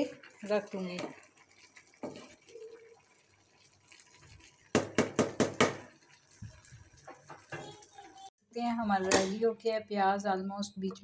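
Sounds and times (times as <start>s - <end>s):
wet stirring in a cooking pot: 0.0s - 8.3s.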